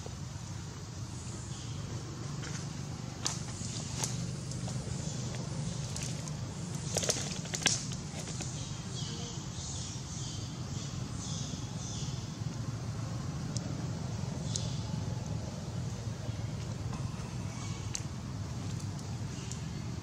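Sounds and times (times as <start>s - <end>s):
dry twigs snapping: 6.9s - 8.5s.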